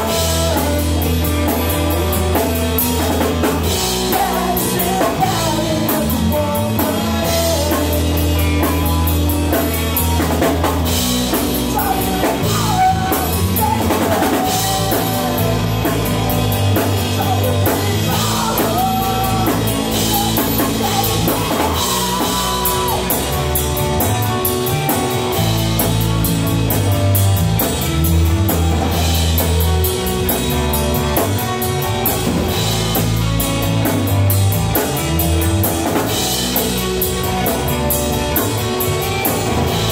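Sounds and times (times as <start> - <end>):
drum kit with cymbal crashes: 0.0 - 39.9
electric guitars: 0.0 - 39.9
heavy bass line: 0.0 - 39.9.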